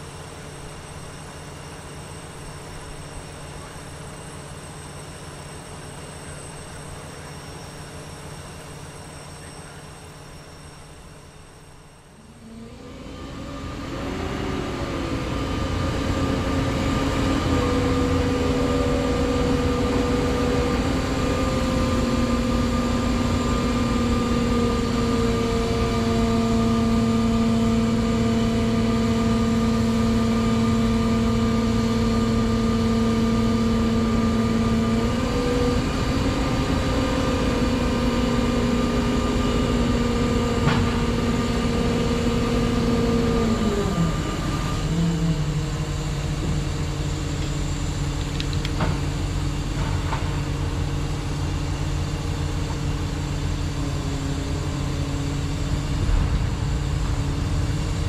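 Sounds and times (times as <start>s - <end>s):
diesel engine revving with whine: 12.1s - 58.0s.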